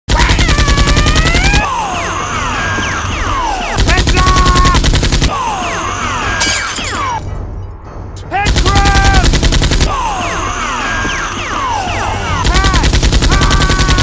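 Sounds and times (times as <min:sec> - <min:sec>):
machine-gun fire effects: 0:00.1 - 0:01.6, 0:03.8 - 0:05.4, 0:08.5 - 0:10.0, 0:12.4 - 0:14.0
music: 0:00.1 - 0:14.0.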